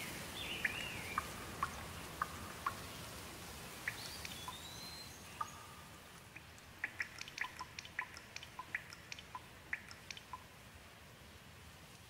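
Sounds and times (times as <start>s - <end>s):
rain hissing: 0.0s - 12.0s
water drops dripping: 3.8s - 4.6s, 5.4s - 10.5s.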